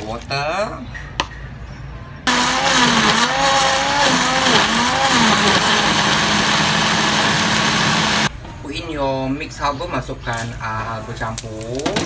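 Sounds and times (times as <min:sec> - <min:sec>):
electric blender grinding: 0:02.3 - 0:08.3.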